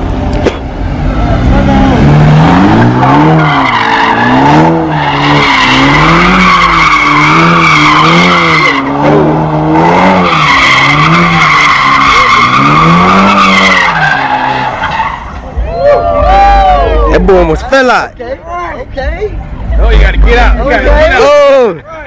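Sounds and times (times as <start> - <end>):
car engine revving: 0.0 - 15.6, 19.4 - 21.6
tyres squealing: 2.4 - 9.0, 9.8 - 15.5.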